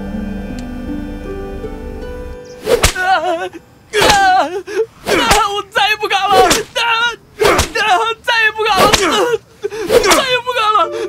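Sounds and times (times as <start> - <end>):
whip lashes striking: 2.6 - 3.2, 4.0 - 4.4, 5.0 - 5.5, 6.4 - 6.8, 7.4 - 7.8, 8.8 - 9.2, 9.9 - 10.3
man crying in pain: 3.0 - 11.0.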